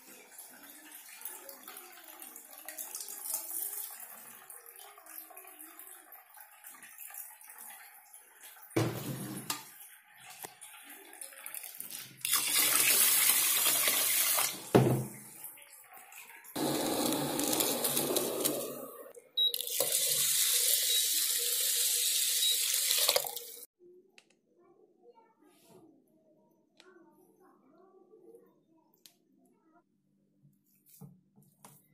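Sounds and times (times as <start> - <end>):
water pouring into metal pot: 9.5 - 14.7, 15.6 - 18.9, 19.5 - 23.7.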